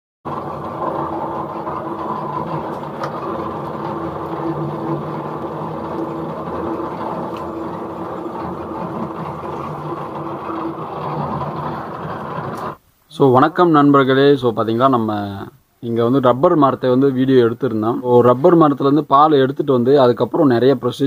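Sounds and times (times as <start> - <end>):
roller mill mechanical hum: 0.3 - 13.3.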